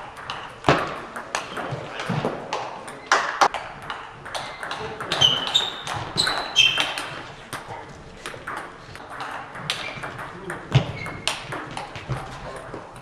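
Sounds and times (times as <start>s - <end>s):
short high squeaks: 4.6s - 7.1s.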